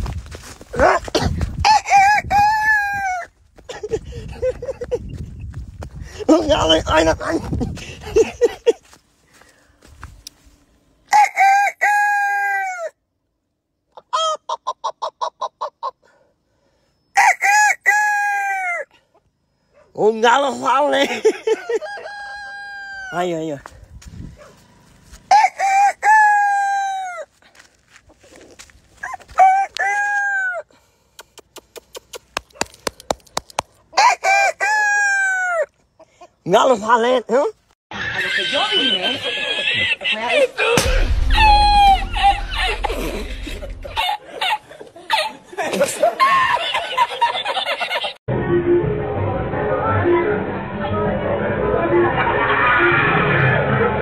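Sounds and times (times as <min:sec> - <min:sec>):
rooster crowing: 0:01.6 - 0:03.3, 0:11.1 - 0:13.0, 0:17.1 - 0:18.9, 0:21.5 - 0:23.3, 0:25.3 - 0:27.3, 0:29.0 - 0:30.7, 0:40.8 - 0:44.2.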